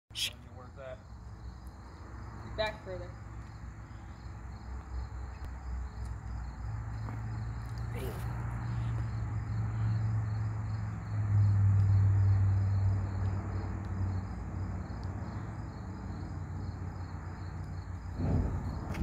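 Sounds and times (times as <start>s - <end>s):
crickets chirping: 0.1s - 19.0s
whoosh of flames catching: 18.2s - 19.0s.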